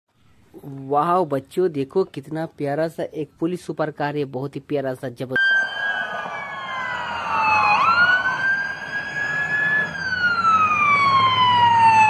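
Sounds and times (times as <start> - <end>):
low rumble of road traffic: 5.4 - 12.0
police siren wailing: 5.4 - 12.0.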